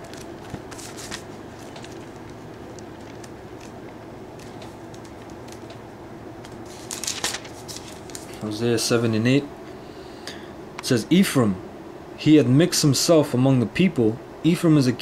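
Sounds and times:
pages rustling: 0.0 - 5.8, 6.4 - 8.5
room hum: 0.0 - 15.0.

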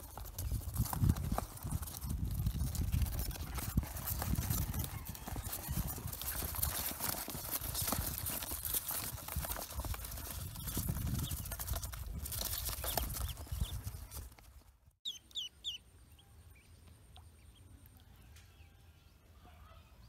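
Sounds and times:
ducklings scrabbling in cardboard box: 0.0 - 14.7.

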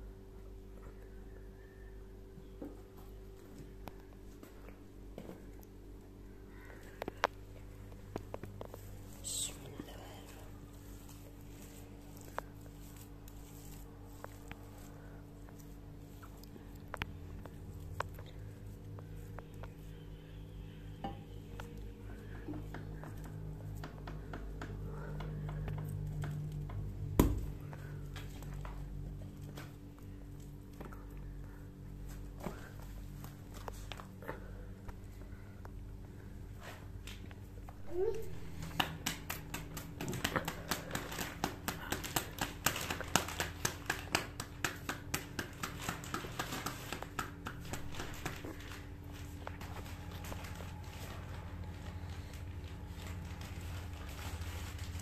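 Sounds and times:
handling soft dough: 0.0 - 55.0
steady low hum: 0.0 - 55.0
dough slapped between wet palms: 38.6 - 48.4.

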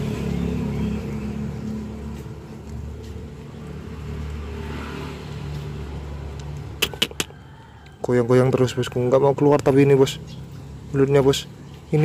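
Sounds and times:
vehicle engine passing: 0.0 - 7.4
sharp clicks: 6.3 - 7.3.

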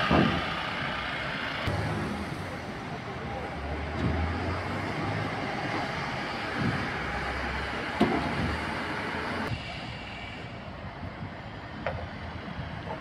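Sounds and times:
bus engine driving off: 0.0 - 13.0.

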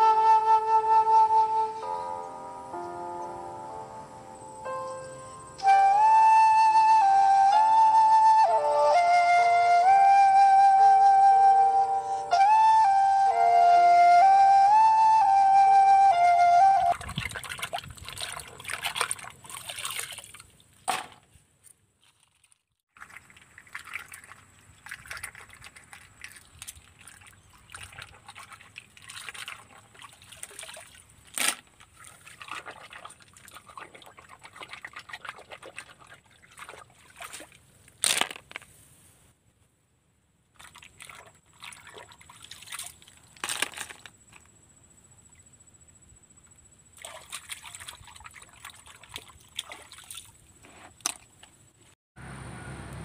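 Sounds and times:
water splashing and sloshing: 16.6 - 21.4, 22.0 - 38.6, 40.5 - 44.4, 46.9 - 51.8.

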